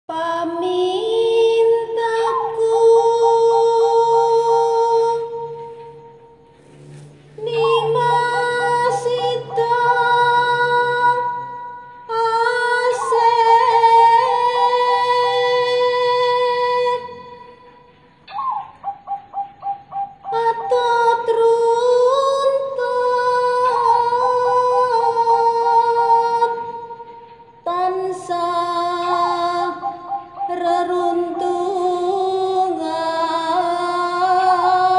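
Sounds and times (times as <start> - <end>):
high voice singing held notes: 0.1 - 18.0
steady musical drone: 0.4 - 34.9.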